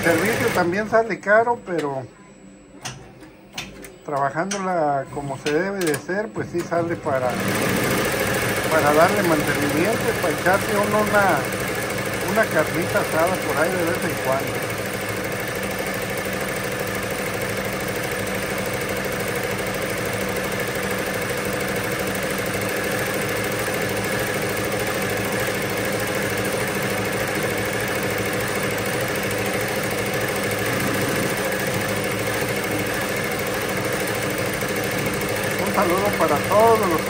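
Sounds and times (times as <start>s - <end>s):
embroidery machine stitching: 0.0s - 1.1s, 4.6s - 37.0s.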